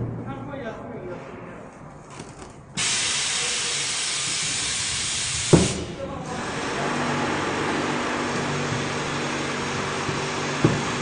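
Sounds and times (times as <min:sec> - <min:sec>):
air rush with faint hum: 0:00.0 - 0:11.0
compressed air hissing: 0:02.8 - 0:11.0.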